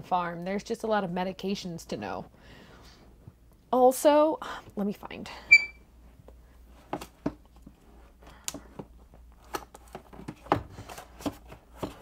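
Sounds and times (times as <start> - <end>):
objects handled on a desk: 8.5 - 12.0.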